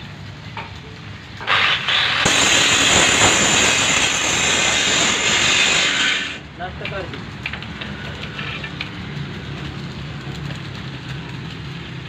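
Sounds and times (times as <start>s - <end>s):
loud rushing hiss: 1.4s - 6.6s
sharp high-pitched hiss: 1.6s - 6.5s.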